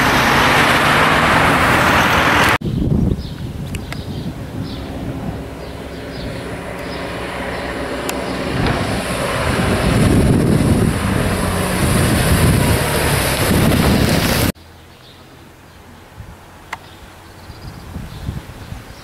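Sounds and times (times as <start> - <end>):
motorcycle engine passing by: 4.3 - 14.6.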